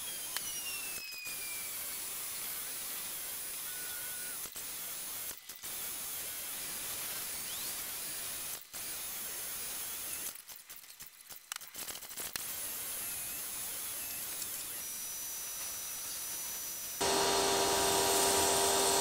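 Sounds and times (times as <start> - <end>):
pressure washer spraying water: 17.0 - 19.0.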